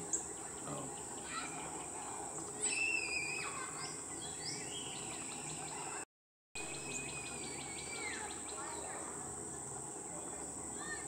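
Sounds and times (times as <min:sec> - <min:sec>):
high insect drone: 0:00.0 - 0:05.9, 0:06.6 - 0:11.0
songbird whistling: 0:02.6 - 0:06.0, 0:06.7 - 0:08.8.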